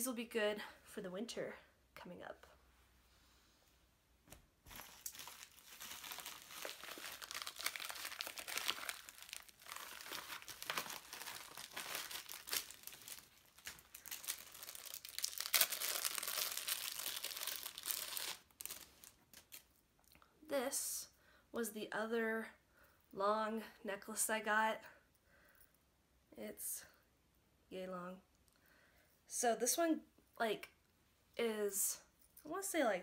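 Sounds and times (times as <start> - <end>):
plastic bag crinkling: 4.7 - 19.7.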